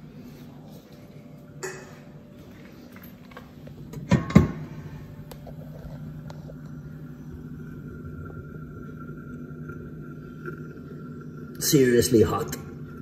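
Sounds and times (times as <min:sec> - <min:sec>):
faint high whine: 0:00.0 - 0:13.0
metal door clunks: 0:04.0 - 0:04.7.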